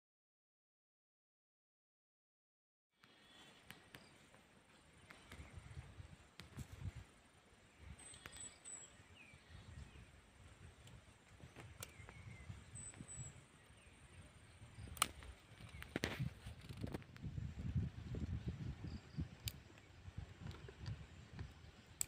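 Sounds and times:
bird chirps: 0:03.0 - 0:06.6, 0:07.6 - 0:16.5
sharp clicks: 0:11.6 - 0:13.2, 0:14.8 - 0:17.3, 0:19.3 - 0:22.0.

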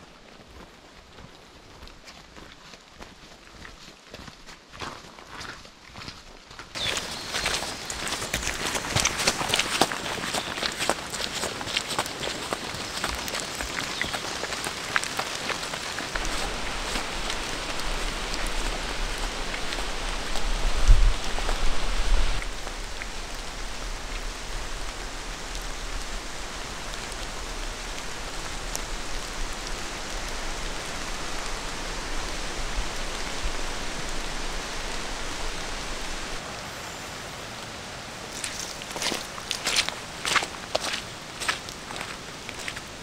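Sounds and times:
steady rain falling: 0:00.0 - 0:43.0.

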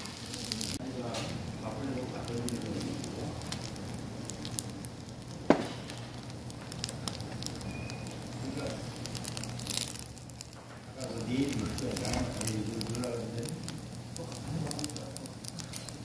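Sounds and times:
rice sizzling in a pan: 0:00.0 - 0:16.0
sharp knock: 0:05.5 - 0:05.9.

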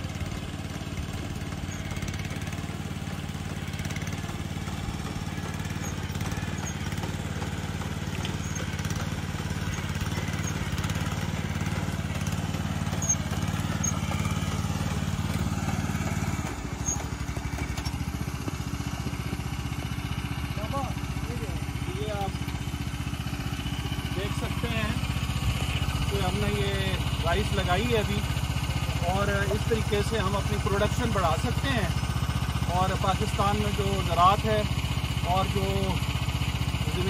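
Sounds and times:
small engine running: 0:00.0 - 0:37.0.

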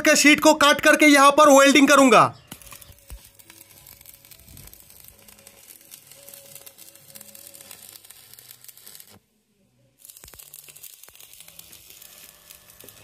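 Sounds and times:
arc welding crackling: 0:00.0 - 0:09.4, 0:10.0 - 0:13.0.

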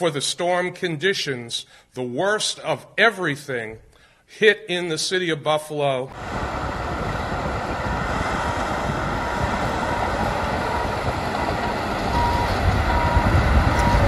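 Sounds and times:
heavy machinery engine rumble: 0:06.1 - 0:14.0.

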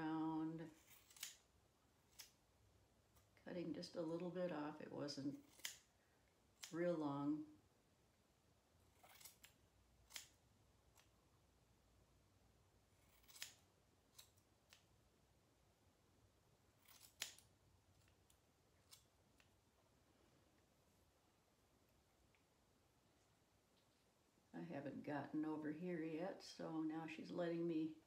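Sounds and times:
scissors snipping fur: 0:00.8 - 0:02.4, 0:05.3 - 0:05.9, 0:06.5 - 0:07.0, 0:08.9 - 0:11.1, 0:13.0 - 0:14.9, 0:16.8 - 0:19.5.

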